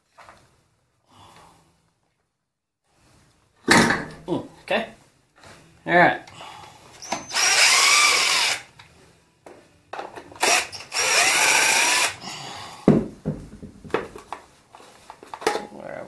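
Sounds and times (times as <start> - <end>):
parts knocking and clattering: 3.7 - 4.2, 12.9 - 14.5
cordless drill motor whine: 7.0 - 8.7, 10.4 - 12.2.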